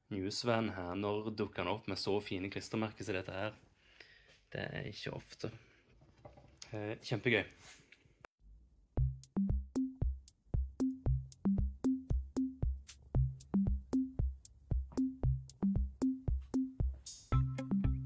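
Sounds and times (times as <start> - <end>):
drum machine beat: 8.9 - 18.0
synth bass line: 9.0 - 18.0.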